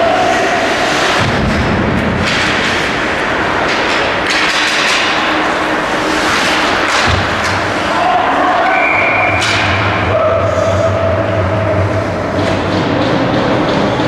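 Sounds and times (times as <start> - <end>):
skates scraping ice: 2.2 - 10.9.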